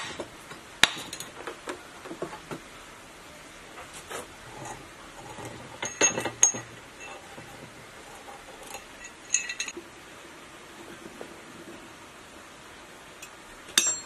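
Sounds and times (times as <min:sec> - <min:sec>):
handling noise: 0:00.0 - 0:02.8, 0:03.7 - 0:09.9
metal clinks: 0:05.4 - 0:07.4, 0:08.5 - 0:09.8, 0:13.2 - 0:14.0.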